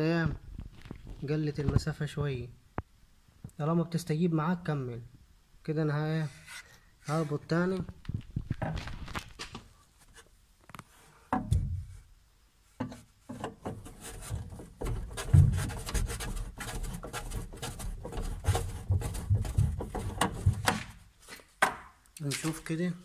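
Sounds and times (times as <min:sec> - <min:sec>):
metal scraping and knocking: 0:11.3 - 0:12.0, 0:12.8 - 0:21.1.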